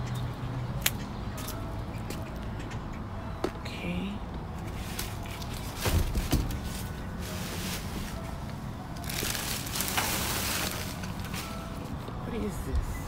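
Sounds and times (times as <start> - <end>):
plastic and cardboard rustling: 9.0 - 11.8.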